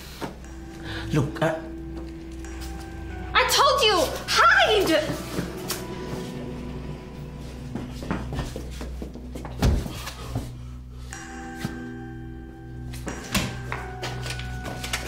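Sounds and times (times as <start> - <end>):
held music note: 0.4 - 9.4.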